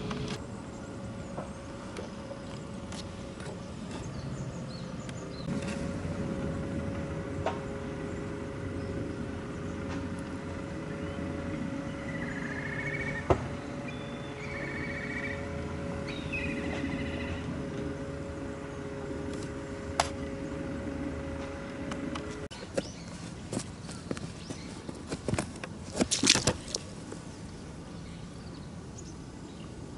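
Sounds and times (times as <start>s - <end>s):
distant road traffic rumble: 0.0s - 29.9s
bird trills: 11.0s - 17.5s.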